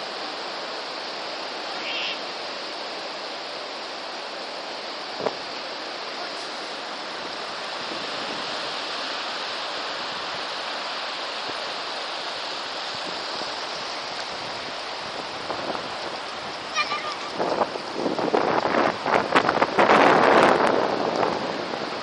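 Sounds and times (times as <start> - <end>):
surf washing over sand: 0.0 - 22.0.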